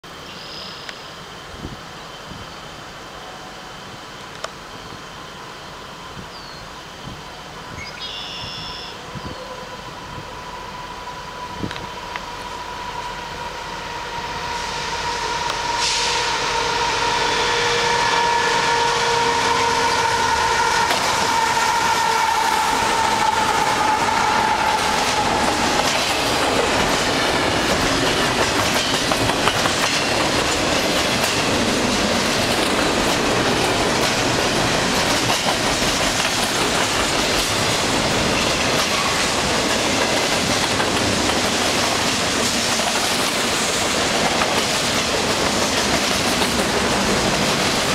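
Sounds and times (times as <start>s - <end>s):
train horn chord: 13.0s - 25.7s
freight cars rumbling and clattering: 22.6s - 47.9s.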